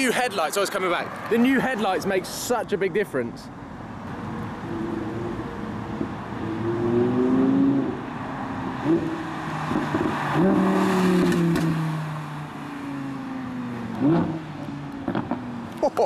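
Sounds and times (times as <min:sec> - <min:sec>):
car engine revving past: 0:06.4 - 0:15.6.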